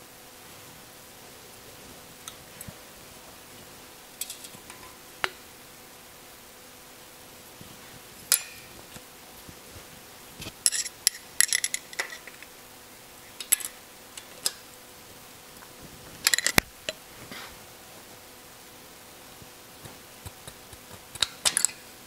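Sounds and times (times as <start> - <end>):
hand tools clinking on metal: 8.3 - 8.7, 10.6 - 12.5, 21.4 - 21.8.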